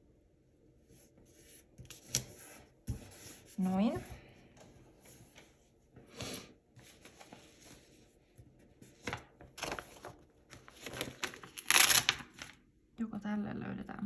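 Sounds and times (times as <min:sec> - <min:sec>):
paper rustling: 0:06.8 - 0:12.6.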